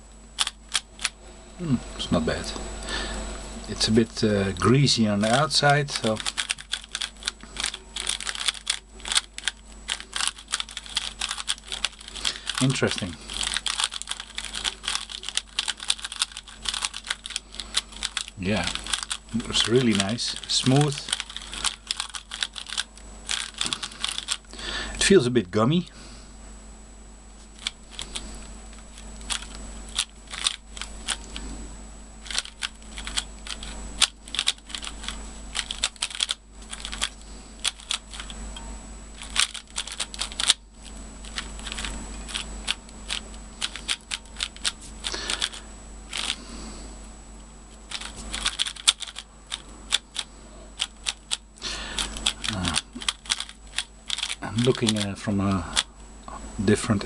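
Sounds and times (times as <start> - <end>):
puzzle cube layers clicking: 5.2 - 24.4, 29.3 - 31.3, 32.2 - 38.3, 39.2 - 40.6, 47.9 - 50.2, 52.0 - 55.0.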